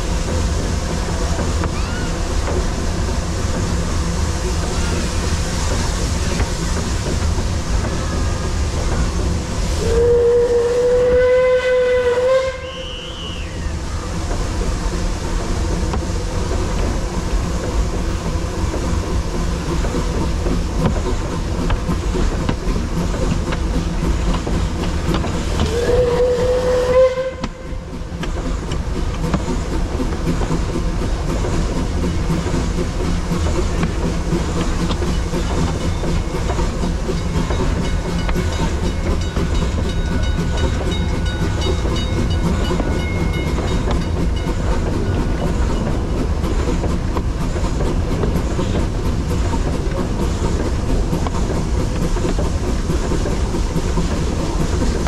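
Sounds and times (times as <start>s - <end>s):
steam locomotive rumbling: 0.0s - 55.0s
steam whistle blast: 9.8s - 13.7s, 25.6s - 27.8s.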